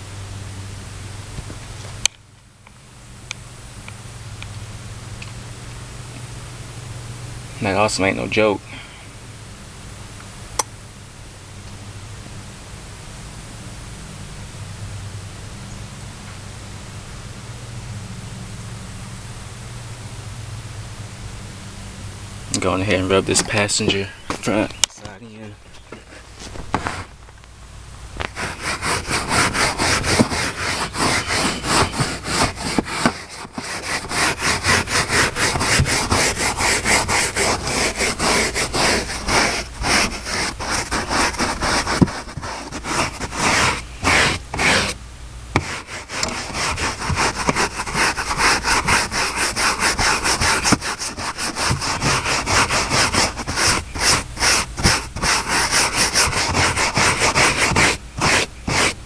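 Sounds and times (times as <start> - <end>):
carpet being scrubbed by hand: 22.6 - 24.7, 26.0 - 27.2, 28.2 - 45.0, 45.6 - 59.0.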